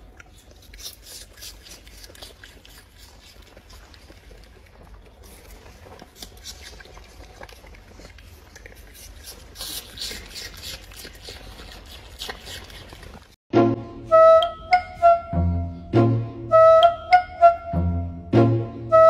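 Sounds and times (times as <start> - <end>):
red panda chewing food: 0.0 - 13.4.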